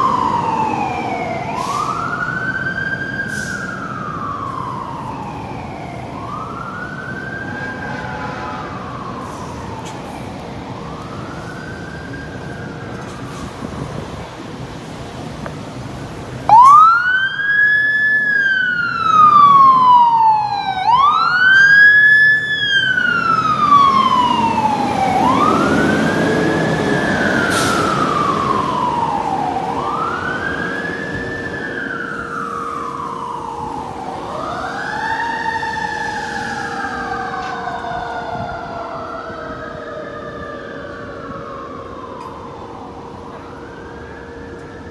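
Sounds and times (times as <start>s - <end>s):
fire truck siren wailing: 0.0s - 44.9s.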